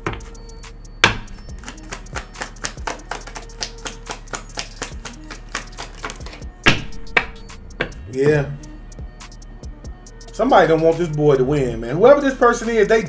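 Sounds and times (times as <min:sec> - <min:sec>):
card snap: 0:01.0 - 0:08.0
cards being shuffled: 0:01.6 - 0:06.4.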